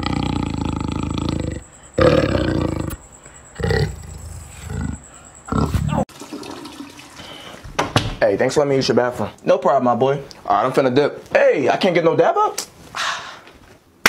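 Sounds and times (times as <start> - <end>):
panther calling: 0.0 - 6.0.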